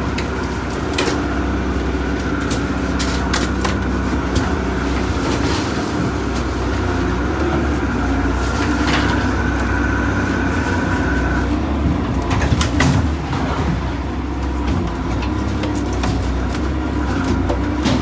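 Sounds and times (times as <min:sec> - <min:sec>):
boat engine running: 0:00.0 - 0:18.0
gear knocking and clattering on deck: 0:11.8 - 0:18.0.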